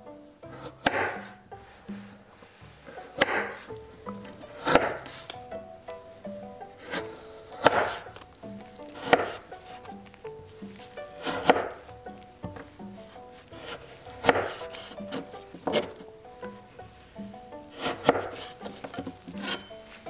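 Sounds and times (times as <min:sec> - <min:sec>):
knife chopping on cutting board: 0:00.5 - 0:01.4, 0:02.9 - 0:05.4, 0:06.8 - 0:08.2, 0:08.8 - 0:16.0, 0:17.7 - 0:19.7.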